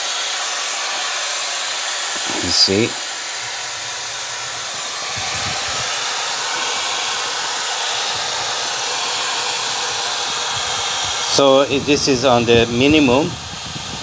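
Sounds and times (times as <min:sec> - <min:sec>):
hair dryer blowing air: 0:00.0 - 0:14.0.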